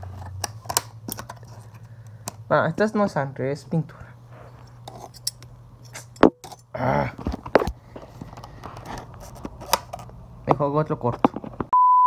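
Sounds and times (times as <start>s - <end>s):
steady low hum: 0.0s - 11.7s
grunt-like voice: 6.7s - 7.2s.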